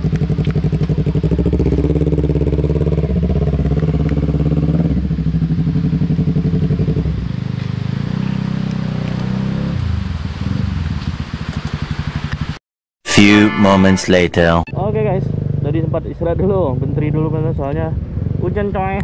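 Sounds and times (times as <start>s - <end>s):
motorcycle engines idling: 0.0s - 8.0s.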